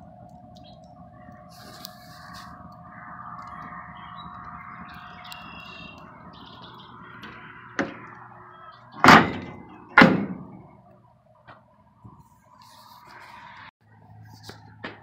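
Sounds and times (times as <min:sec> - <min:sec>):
metal door banging: 0:07.1 - 0:08.2, 0:08.9 - 0:10.8.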